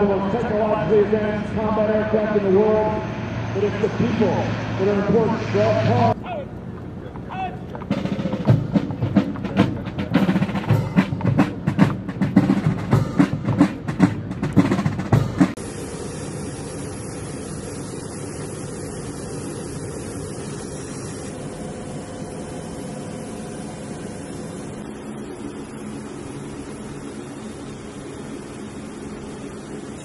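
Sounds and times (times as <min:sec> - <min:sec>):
turboprop engines humming: 0:00.0 - 0:30.0
horse hooves clopping on concrete: 0:06.2 - 0:15.6.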